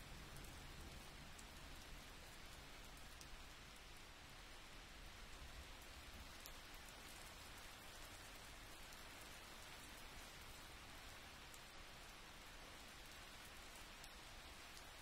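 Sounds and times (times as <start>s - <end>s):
faint steady hiss: 0.0s - 15.0s
tiny ticks: 13.0s - 15.0s.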